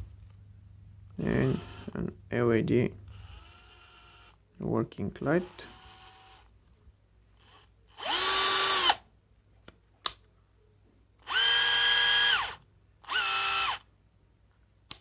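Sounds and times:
cordless drill whining: 0:01.2 - 0:02.0, 0:03.1 - 0:04.4, 0:05.2 - 0:06.5, 0:07.4 - 0:09.0, 0:11.2 - 0:13.8.

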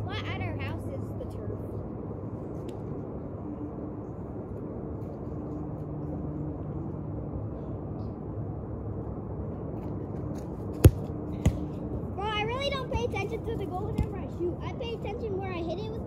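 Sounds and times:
low outdoor rumble: 0:00.0 - 0:16.0
soccer ball kick thud: 0:10.7 - 0:11.8.

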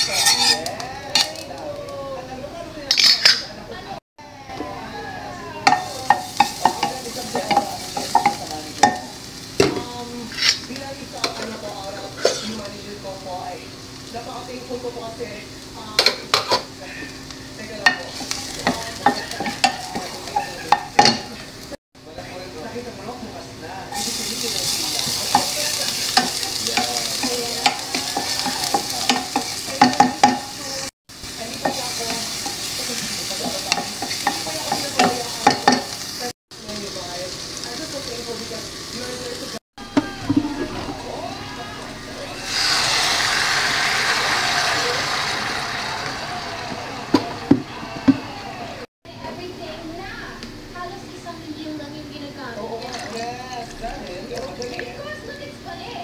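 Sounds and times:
wooden spatula scraping pan: 0:00.0 - 0:00.7
wooden spoon scraping a pan: 0:00.0 - 0:00.8, 0:17.9 - 0:21.5, 0:24.0 - 0:36.0
garlic sizzling in hot oil: 0:00.0 - 0:01.9, 0:05.6 - 0:48.2.

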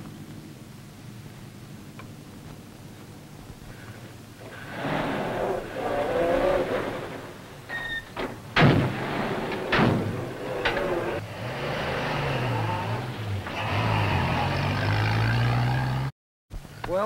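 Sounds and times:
vehicle engine revving roughly: 0:04.4 - 0:07.7, 0:08.8 - 0:16.1
sharp loud bangs: 0:08.2 - 0:11.2.

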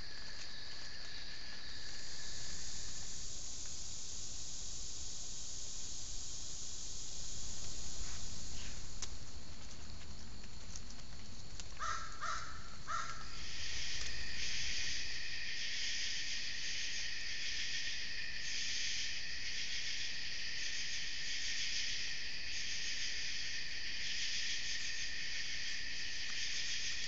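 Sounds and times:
night insects chorus: 0:00.0 - 0:27.0
crow cawing: 0:11.8 - 0:13.4.

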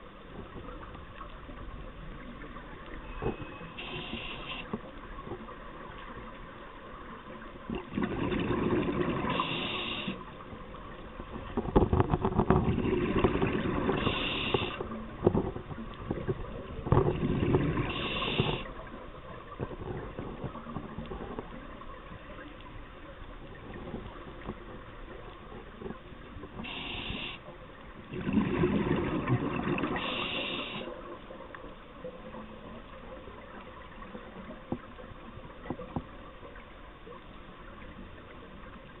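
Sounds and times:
regulator hissing inhalations: 0:03.8 - 0:04.7, 0:09.3 - 0:10.2, 0:14.0 - 0:14.8, 0:17.9 - 0:18.7, 0:26.7 - 0:27.4, 0:30.0 - 0:30.9
bubbling exhalations underwater: 0:07.7 - 0:10.2, 0:12.6 - 0:14.8, 0:16.9 - 0:18.7, 0:28.1 - 0:30.9.

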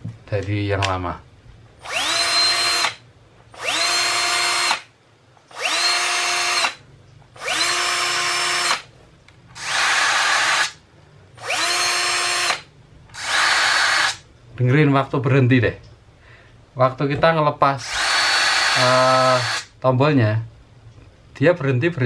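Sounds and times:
cordless drill whining: 0:01.8 - 0:03.0, 0:03.6 - 0:04.9, 0:05.5 - 0:06.8, 0:07.4 - 0:08.9, 0:09.6 - 0:10.8, 0:11.4 - 0:12.6, 0:13.2 - 0:14.2, 0:17.8 - 0:19.7.

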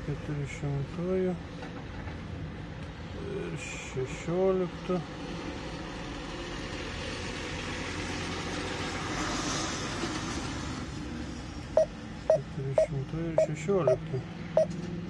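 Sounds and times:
short beeps: 0:11.8 - 0:14.7.

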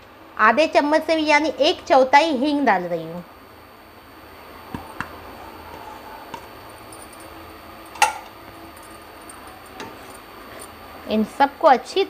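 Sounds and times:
kitchenware clicks and taps: 0:08.0 - 0:08.3.

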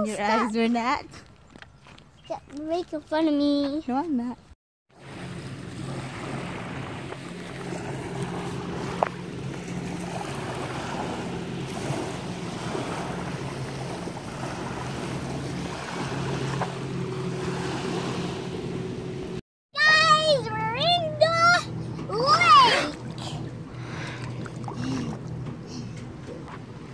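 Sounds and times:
lake waves lapping at shore: 0:04.9 - 0:20.6, 0:21.2 - 0:26.7
low steady hum: 0:05.0 - 0:26.9.

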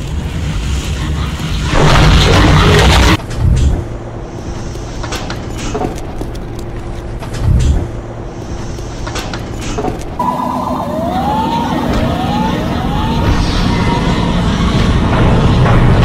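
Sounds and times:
low mechanical rumble: 0:00.0 - 0:16.0
siren wailing: 0:10.2 - 0:15.2.

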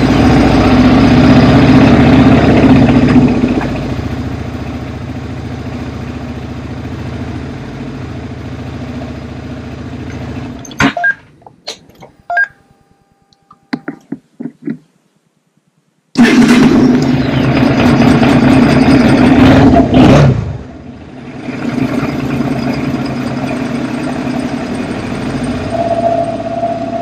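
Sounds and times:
motorcycle engine idling: 0:00.0 - 0:10.6, 0:20.8 - 0:25.6
short beeps: 0:12.0 - 0:13.8.

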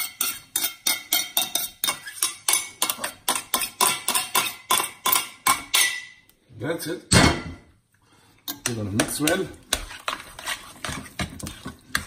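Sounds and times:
utensil clinking against bowl: 0:00.0 - 0:06.2.

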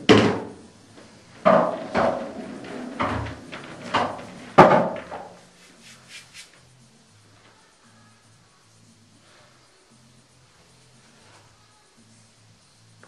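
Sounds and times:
pool balls knocking: 0:00.0 - 0:00.6, 0:01.3 - 0:05.4.

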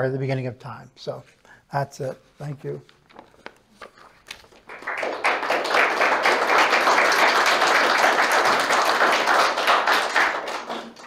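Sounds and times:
audience clapping: 0:04.2 - 0:11.0.

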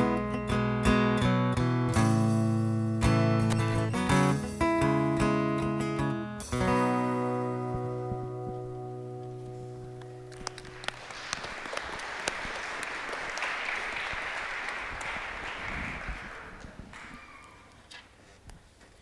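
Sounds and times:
keyboard and guitar chord ringing: 0:00.0 - 0:10.4
congregation applauding: 0:10.3 - 0:17.8.

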